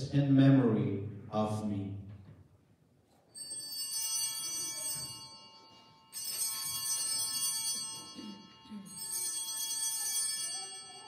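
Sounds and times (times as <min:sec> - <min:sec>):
altar bells ringing: 0:03.3 - 0:11.0.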